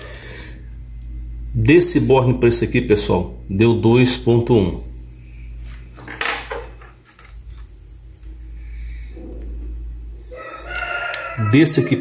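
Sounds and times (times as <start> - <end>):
faint handling and rustling: 5.4 - 8.5.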